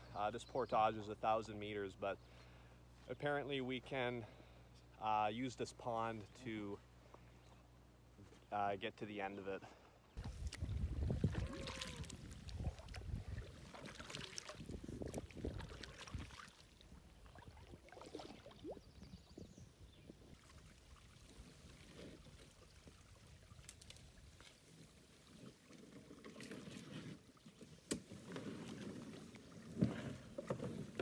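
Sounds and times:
canoe paddle strokes splashing: 10.2s - 19.1s, 20.2s - 31.0s
canoe knocking and scraping on rock: 27.9s - 31.0s.

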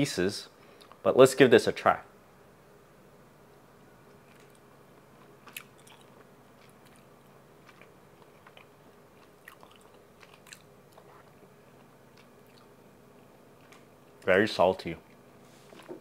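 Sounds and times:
low steady hum: 0.0s - 16.0s
person chewing with mouth clicks: 5.2s - 12.7s.

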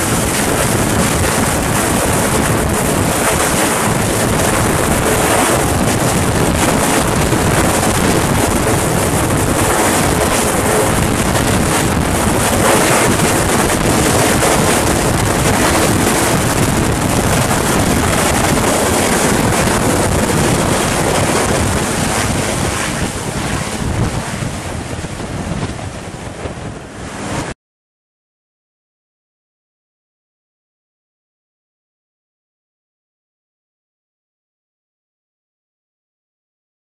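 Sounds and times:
helicopter rotor and engine roar: 0.0s - 27.6s
wind noise on microphone: 0.0s - 27.6s.

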